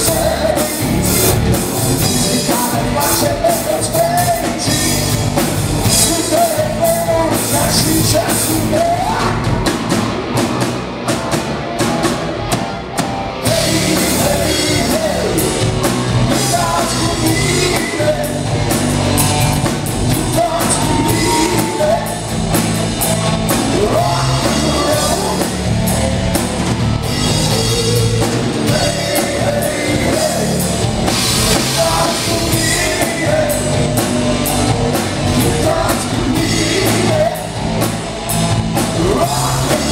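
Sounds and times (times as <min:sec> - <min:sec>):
distorted electric guitars: 0:00.0 - 0:39.9
drum kit: 0:00.0 - 0:39.9
person singing: 0:02.0 - 0:09.8, 0:13.4 - 0:18.8, 0:20.1 - 0:22.4, 0:23.5 - 0:25.6, 0:27.5 - 0:37.8, 0:38.8 - 0:39.9.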